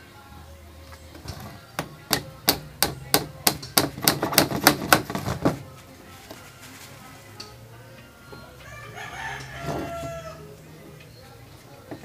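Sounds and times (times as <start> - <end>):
hammer tapping a nail: 1.8 - 5.1.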